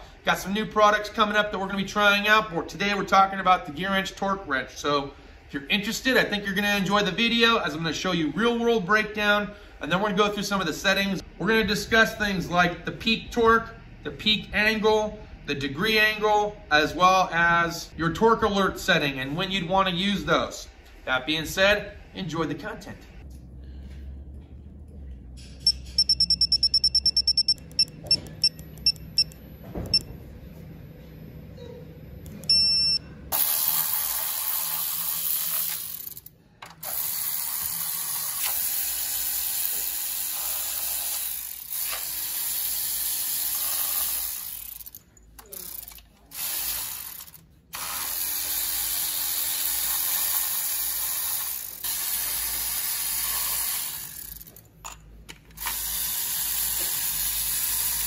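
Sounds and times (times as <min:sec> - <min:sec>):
torque wrench short high beeps: 0:25.6 - 0:30.1, 0:32.4 - 0:34.0
wrench ratchet clicks: 0:33.4 - 0:54.6, 0:55.5 - 0:58.0.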